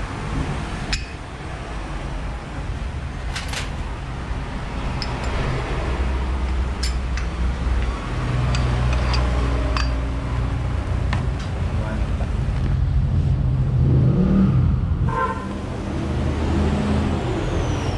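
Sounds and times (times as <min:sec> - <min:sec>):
metal parts clinking: 0:06.8 - 0:07.9, 0:08.5 - 0:10.0.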